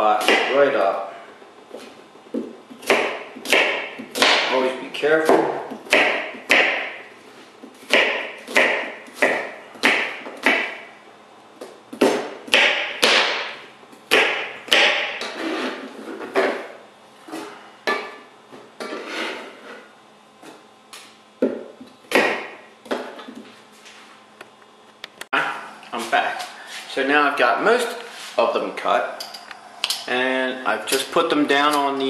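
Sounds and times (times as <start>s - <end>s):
knife chopping on plastic board: 0.2s - 0.6s, 2.4s - 4.6s, 5.2s - 7.0s, 7.8s - 10.8s, 11.6s - 15.4s, 21.4s - 23.2s.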